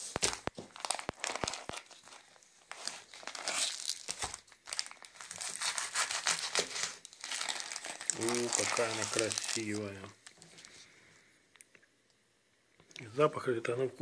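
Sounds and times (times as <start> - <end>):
plastic packaging crinkling: 0.0 - 10.8.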